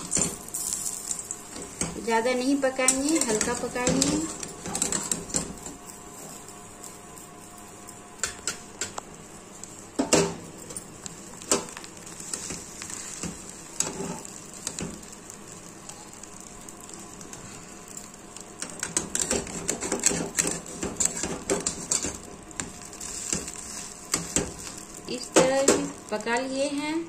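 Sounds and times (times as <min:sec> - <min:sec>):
bread sizzling in oil: 0:00.0 - 0:27.0.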